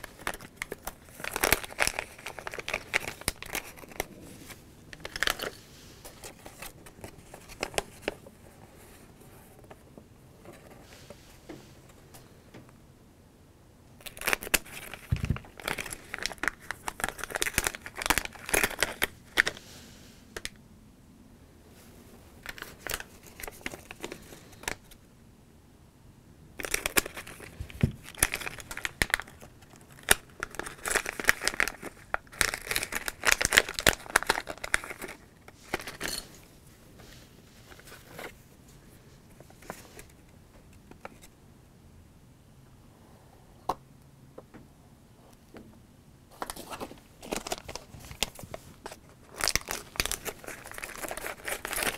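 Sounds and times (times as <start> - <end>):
plastic packets crinkling: 0.0 - 8.3, 14.0 - 19.6, 22.4 - 25.0, 26.6 - 36.3, 46.3 - 51.9.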